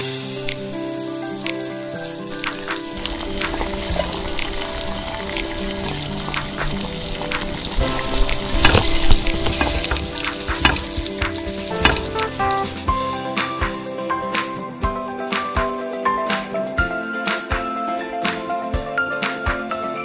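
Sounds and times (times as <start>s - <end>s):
food sizzling in a wok: 0.0s - 13.5s.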